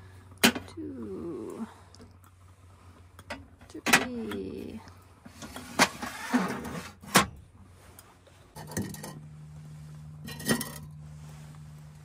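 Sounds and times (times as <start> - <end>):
steady low hum: 0.0 - 12.0
metal pot clanking on wire grille: 8.6 - 9.2, 10.2 - 10.9.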